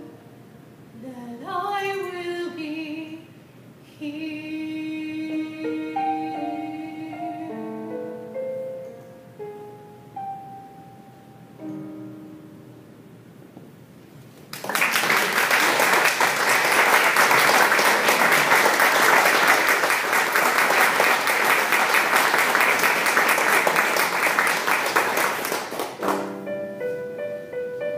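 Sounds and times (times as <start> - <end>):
audience applause: 14.5 - 26.3
electronic keyboard notes: 26.0 - 27.9.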